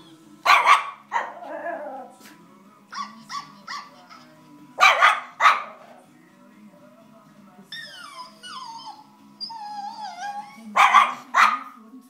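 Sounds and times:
recorded dog sounds: 0.0 - 6.2, 7.7 - 11.9
small dog barking excitedly: 0.5 - 1.6, 4.8 - 5.8, 10.8 - 11.8
dog yipping: 2.9 - 5.8, 7.7 - 11.7.

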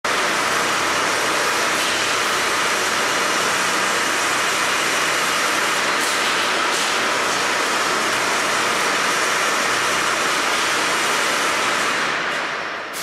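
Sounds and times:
machinery hiss: 12.8 - 13.0.

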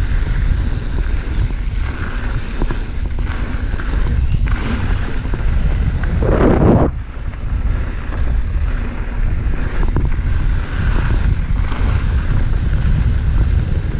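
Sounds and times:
tyres rumbling on dirt trail: 0.0 - 13.9
wind buffeting microphone: 0.0 - 13.9.

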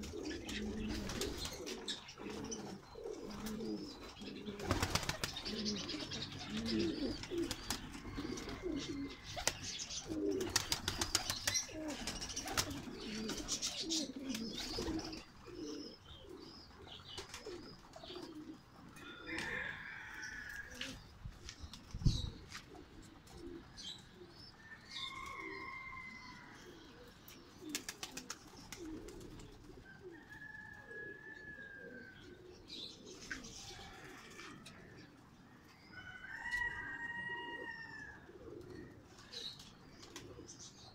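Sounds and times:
wing flapping: 0.0 - 1.8, 4.4 - 6.0, 9.2 - 15.1, 27.7 - 29.7
small birds chirping: 0.0 - 18.8
pigeons cooing: 0.0 - 40.9.

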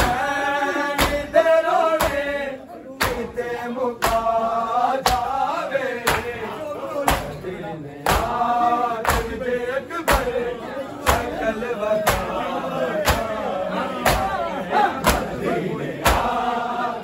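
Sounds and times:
men chanting: 0.0 - 17.0
hands slapping bare chests: 1.0 - 1.3, 2.0 - 2.3, 3.0 - 3.3, 4.0 - 4.4, 5.0 - 5.4, 6.0 - 6.3, 8.1 - 8.4, 9.0 - 9.4, 10.1 - 10.4, 11.0 - 11.4, 12.0 - 12.4, 13.0 - 13.4, 15.0 - 15.4, 16.0 - 16.4.

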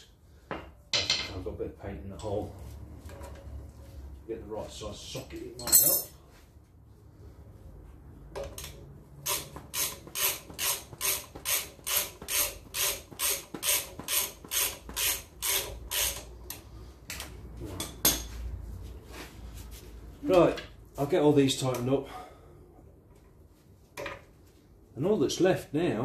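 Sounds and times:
socket ratchet strokes: 9.2 - 16.6.

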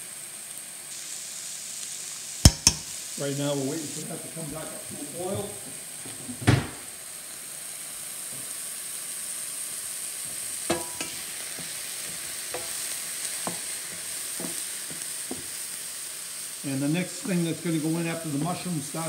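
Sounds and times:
mushrooms sizzling in a frying pan: 0.0 - 19.0
wooden spatula scraping a pan: 10.3 - 15.8.

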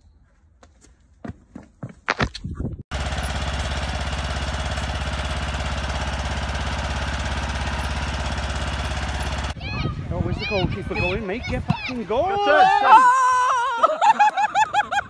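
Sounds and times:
lawn mower engine running: 2.9 - 9.6.

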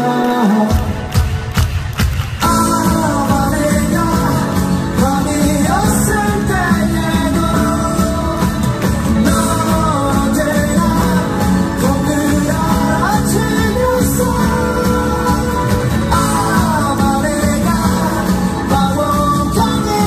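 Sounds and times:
man singing rock vocals: 0.0 - 1.6, 2.4 - 20.0
electric guitar and band: 0.0 - 20.0.

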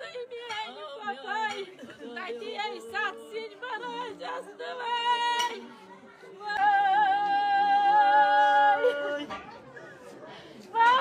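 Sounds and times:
women wailing in mourning: 6.9 - 9.3.

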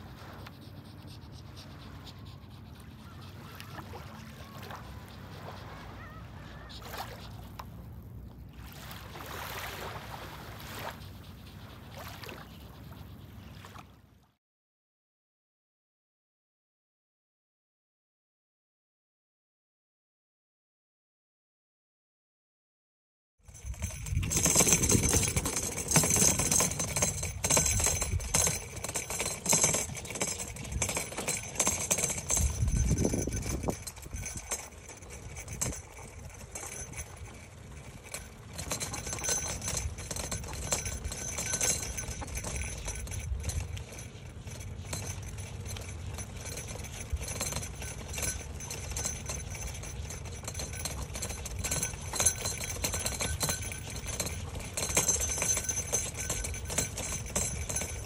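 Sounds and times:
bicycle frame rattling and clicking: 23.4 - 58.0
tyre and wind rumble: 23.5 - 58.0.

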